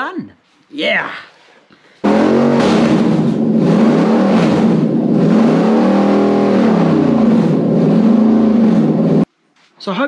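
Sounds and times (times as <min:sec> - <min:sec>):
engine revving: 0:02.0 - 0:09.3.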